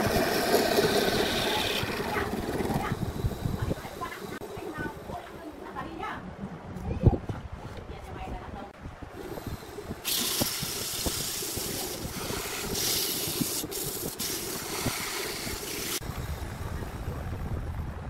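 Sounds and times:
lathe humming: 0:00.0 - 0:04.8
sandpaper hissing on wood: 0:10.1 - 0:16.0.

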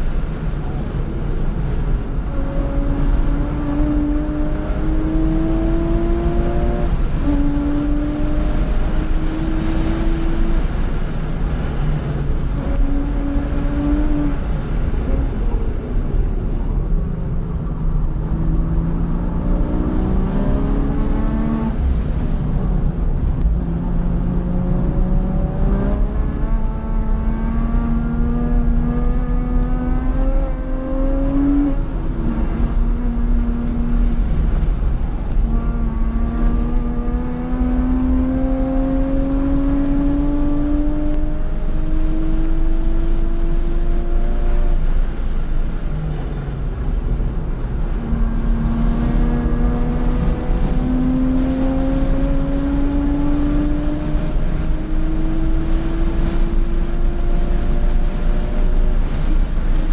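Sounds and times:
car engine revving: 0:00.0 - 0:59.9
road and wind noise: 0:00.0 - 0:59.9.

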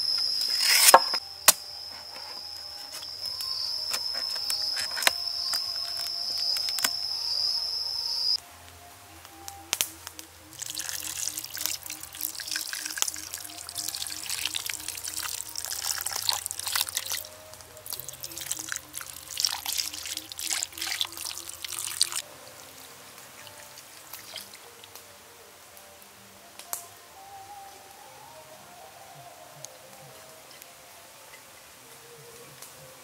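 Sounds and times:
soft background music: 0:00.7 - 0:33.0
sauce bubbling and sizzling: 0:10.5 - 0:25.0.

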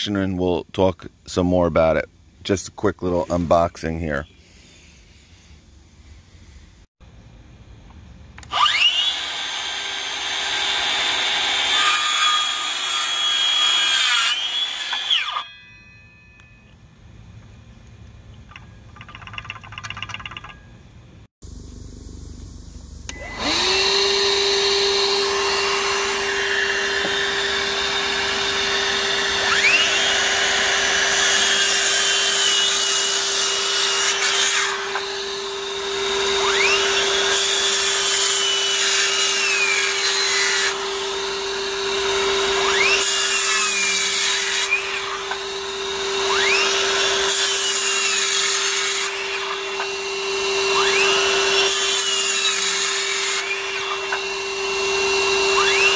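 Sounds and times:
circular saw cutting wood: 0:08.4 - 0:16.0, 0:23.1 - 0:55.9.

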